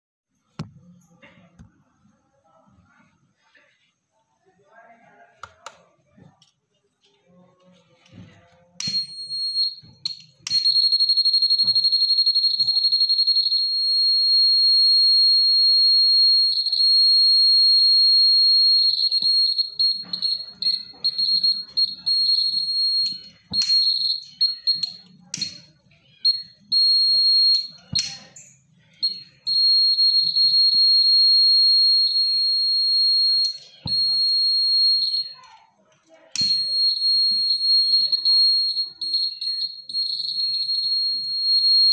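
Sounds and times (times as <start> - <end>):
piezo buzzer high-pitched tone: 8.8 - 25.1.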